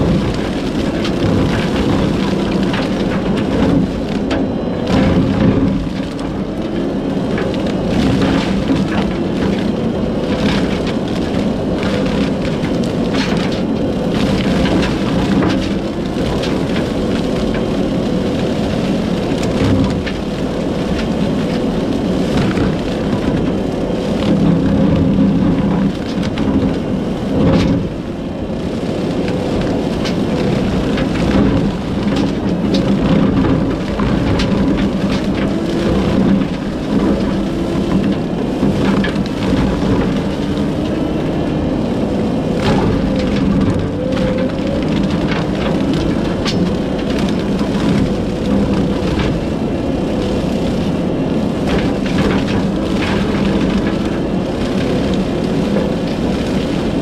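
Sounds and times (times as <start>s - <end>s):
loader engine and cutter drone: 0.0s - 57.0s
brush cracking and snapping: 28.9s - 57.0s.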